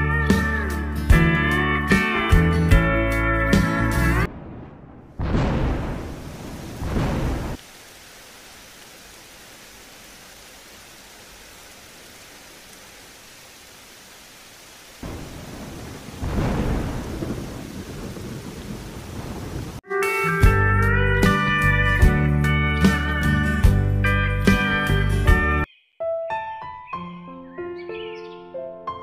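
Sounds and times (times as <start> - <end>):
thunder rumbling: 4.2 - 7.6, 15.0 - 19.8
steady rain hiss: 4.3 - 19.8.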